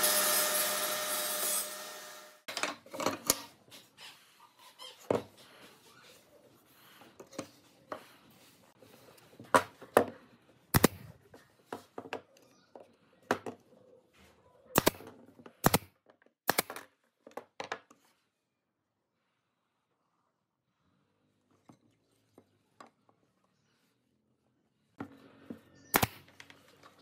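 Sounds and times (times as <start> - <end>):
pneumatic nailer firing: 14.8 - 15.0, 25.9 - 26.2.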